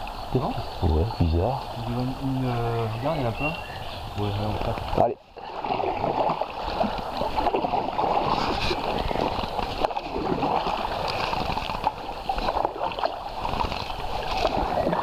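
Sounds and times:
kayak paddle splashing: 0.0 - 15.0.

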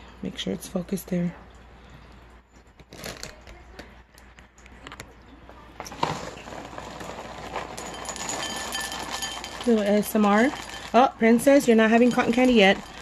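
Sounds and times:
cereal pouring into glass bowl: 5.9 - 13.0.

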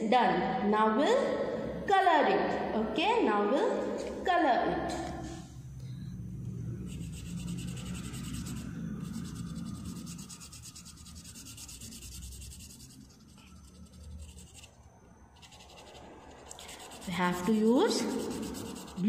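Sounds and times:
crayon scribbling on card: 6.9 - 14.7, 15.4 - 19.0.

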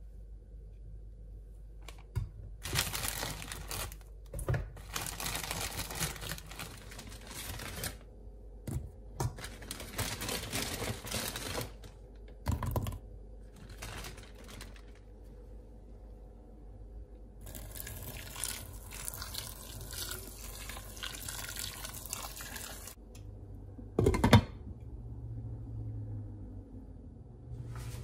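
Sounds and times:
plastic bag crinkling: 2.6 - 8.1, 9.3 - 12.2, 13.4 - 15.2
vegetables rattling into metal pot: 13.6 - 15.0.

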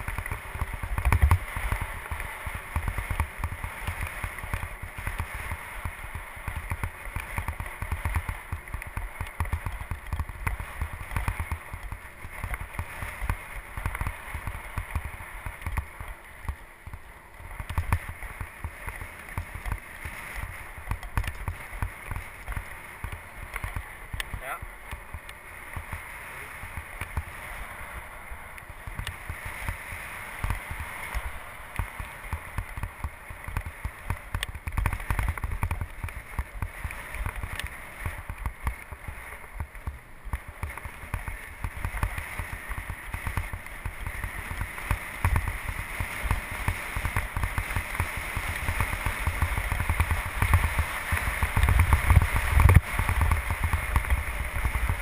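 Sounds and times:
tyres rolling on asphalt: 0.0 - 55.0
wind buffeting microphone: 40.2 - 55.0.

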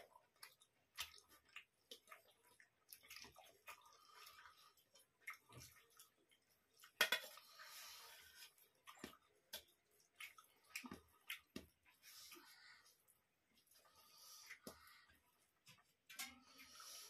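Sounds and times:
chewing and lip smacks: 0.0 - 7.0, 8.6 - 13.0
fingers squishing food on plates: 0.0 - 13.0.

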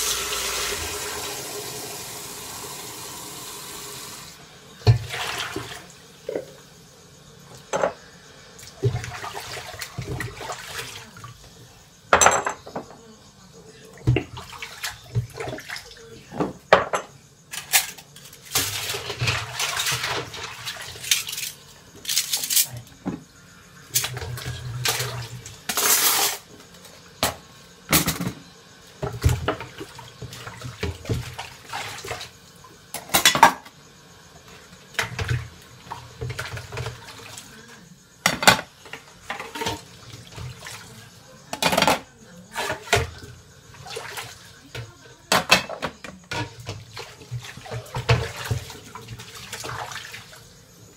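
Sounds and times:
dishes and cutlery clinking: 12.1 - 13.0
water splashing: 46.4 - 50.5.

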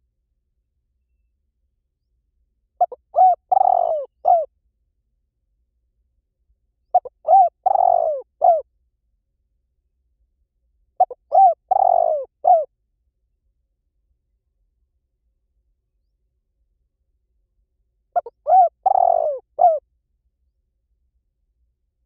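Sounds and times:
dove cooing: 2.8 - 4.5, 7.0 - 8.6, 11.0 - 12.7, 18.2 - 19.8.

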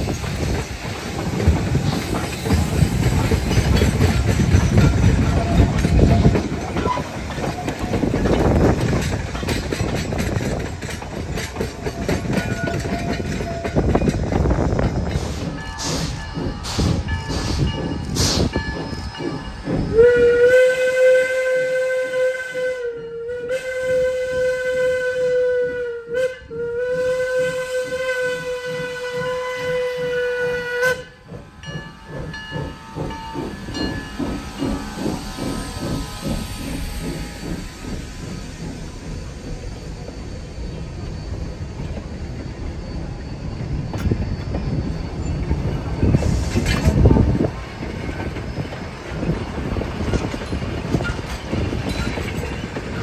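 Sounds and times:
steam hiss: 0.0 - 22.8, 26.9 - 53.0
steam locomotive whistle: 4.8 - 8.8, 11.9 - 14.6, 15.2 - 41.9
locomotive exhaust chuffing: 26.8 - 53.0.

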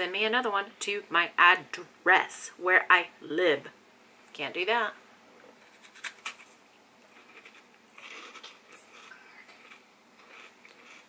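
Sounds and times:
soft chewing and mouth noises: 5.4 - 11.0
teeth crunching ice popsicle: 7.1 - 11.0.

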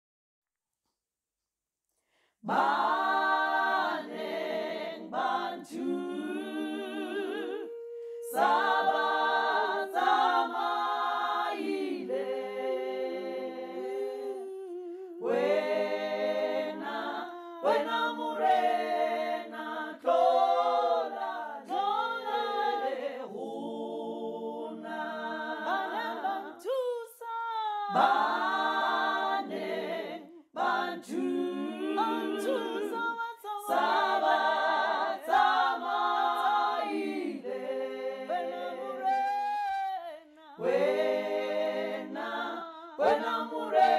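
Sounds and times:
woman singing a cappella choir: 2.4 - 43.9.

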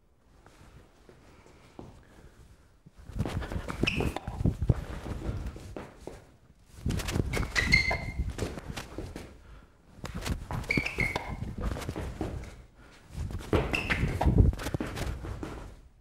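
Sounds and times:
sneaker footsteps on hard floor: 3.2 - 9.4, 10.0 - 15.8
shoe squeaks: 3.6 - 4.5, 7.0 - 8.6, 10.5 - 12.6, 13.5 - 14.9.

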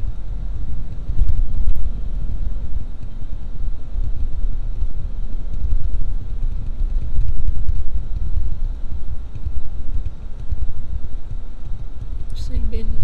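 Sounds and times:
car rumble from inside cabin: 0.0 - 13.0.

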